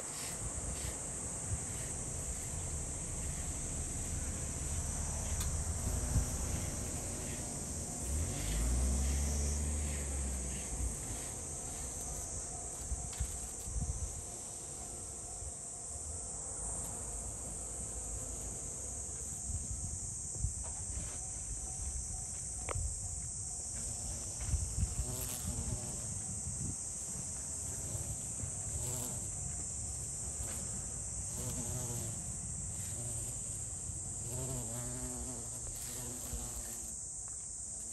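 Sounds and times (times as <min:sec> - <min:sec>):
high-pitched insect chorus: 0:00.0 - 0:37.9
bees buzzing: 0:00.1 - 0:16.0, 0:23.6 - 0:37.1.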